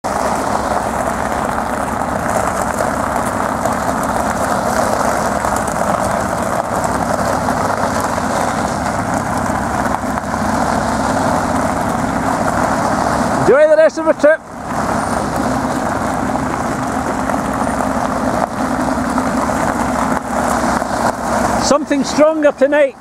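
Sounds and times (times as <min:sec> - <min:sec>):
sports car engines running: 0:00.0 - 0:23.0
tyres crunching on gravel: 0:00.0 - 0:23.0.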